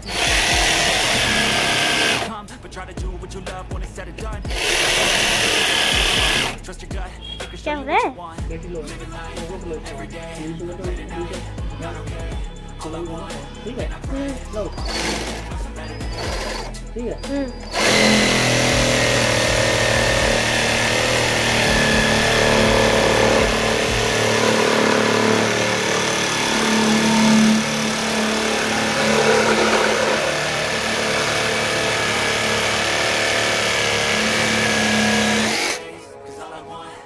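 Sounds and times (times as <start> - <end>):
reciprocating saw motor hum: 0.0 - 2.4, 4.5 - 6.6, 14.8 - 16.7, 17.6 - 35.8
saw teeth cutting plastic pipe: 0.0 - 2.4, 4.5 - 6.6, 14.7 - 35.9.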